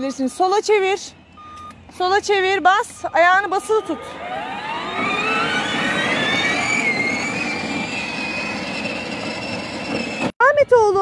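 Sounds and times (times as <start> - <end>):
electric motor whining: 1.6 - 10.3
plastic wheels rolling on asphalt: 1.8 - 10.3.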